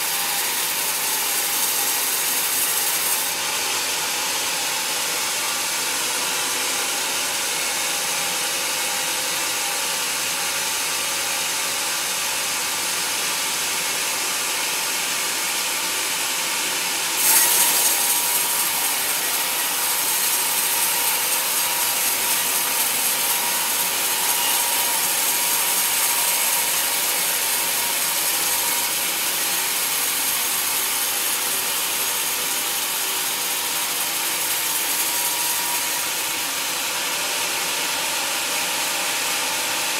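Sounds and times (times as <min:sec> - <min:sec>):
band saw cutting through log: 0:00.0 - 0:39.9.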